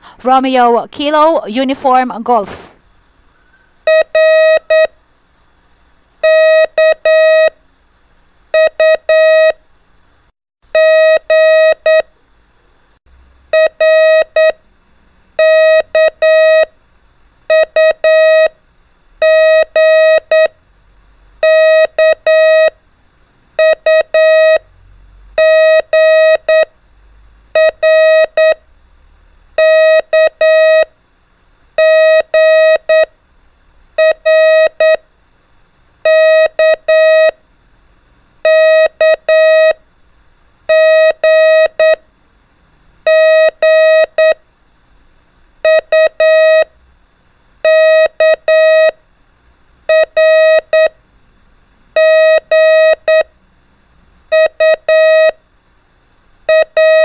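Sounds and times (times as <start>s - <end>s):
morse code beeps: 3.9s - 4.9s, 6.2s - 7.5s, 8.6s - 9.6s, 15.4s - 16.7s, 17.5s - 18.5s, 19.2s - 20.5s, 21.4s - 22.7s, 23.6s - 24.6s, 25.4s - 26.7s, 27.6s - 28.6s, 29.6s - 30.9s, 31.8s - 33.1s, 34.0s - 35.0s, 36.1s - 37.4s, 38.5s - 39.8s, 40.7s - 42.0s, 43.1s - 44.4s, 45.6s - 46.7s, 47.6s - 49.0s, 49.9s - 51.0s, 52.0s - 53.3s, 54.3s - 55.4s, 56.5s - 57.0s.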